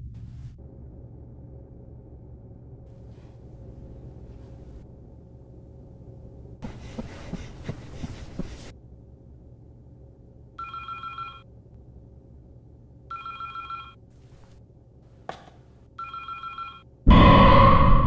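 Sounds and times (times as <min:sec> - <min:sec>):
desk telephone ringing: 0:10.6 - 0:11.4, 0:13.1 - 0:14.0, 0:16.0 - 0:16.8
loud burst of noise: 0:17.1 - 0:18.0.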